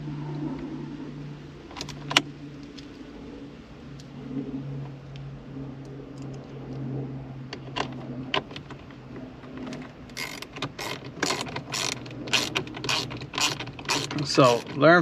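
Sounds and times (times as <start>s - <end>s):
ratchet wrench clicking: 10.2s - 14.9s.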